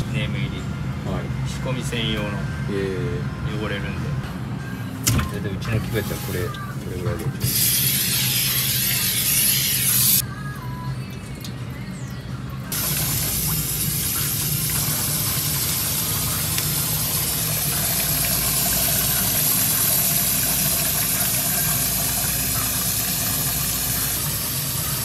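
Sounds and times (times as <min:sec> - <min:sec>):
low kitchen hum: 0:00.0 - 0:25.0
running water hissing: 0:07.4 - 0:10.2, 0:12.7 - 0:25.0.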